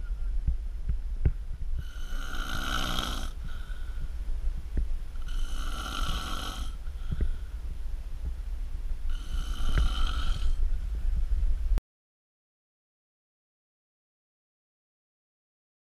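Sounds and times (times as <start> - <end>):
man snoring: 1.8 - 3.4, 5.2 - 6.8, 9.1 - 10.6.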